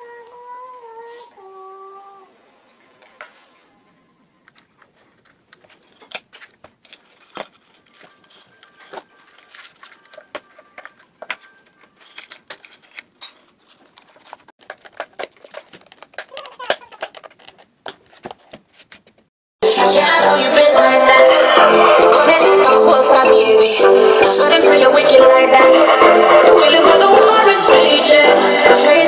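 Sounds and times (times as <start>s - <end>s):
clicks taps and scrapes of handling: 12.2s - 19.3s.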